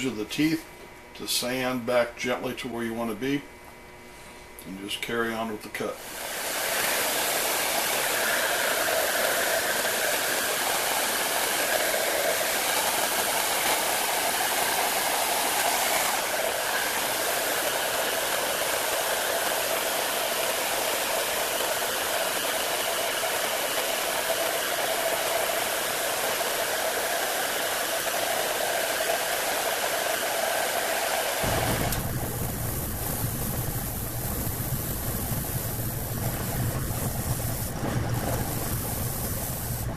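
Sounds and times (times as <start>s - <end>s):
heat gun blowing: 5.9s - 39.9s
spindle sander motor hum: 6.0s - 39.9s.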